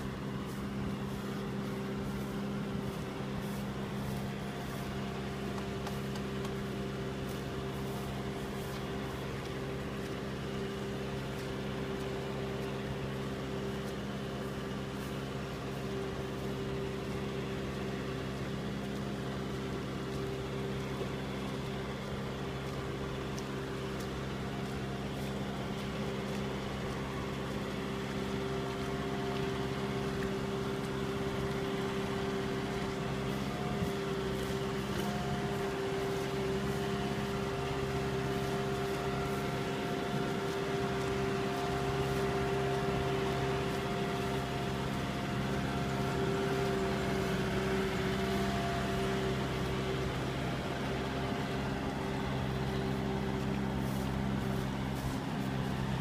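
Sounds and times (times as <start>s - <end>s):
tractor diesel engine droning: 0.0s - 56.0s.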